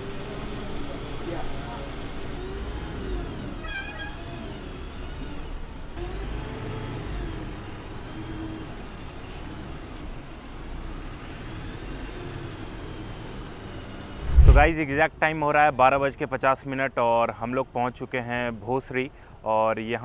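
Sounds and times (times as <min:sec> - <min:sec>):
diesel bus engine rumble: 0:00.0 - 0:14.2.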